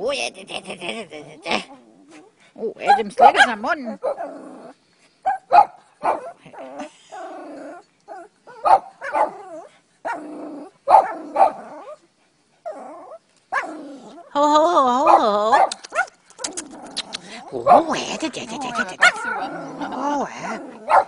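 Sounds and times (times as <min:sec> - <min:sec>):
dog whining and barking: 0:05.3 - 0:14.3, 0:18.6 - 0:21.0.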